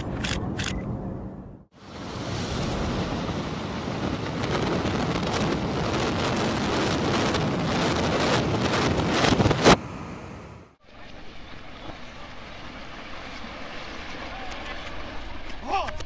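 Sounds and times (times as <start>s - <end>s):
sharp explosive cracks: 2.2s - 9.8s.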